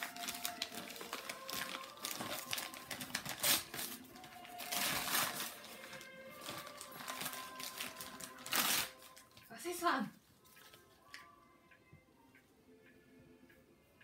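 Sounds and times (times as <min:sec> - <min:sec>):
wrapping paper crinkling and tearing: 0:00.0 - 0:09.4.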